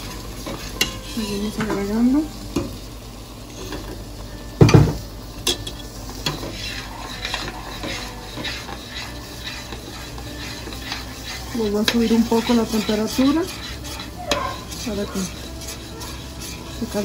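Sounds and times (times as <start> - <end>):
utensil scraping a pot: 0.0 - 2.0, 5.4 - 17.0.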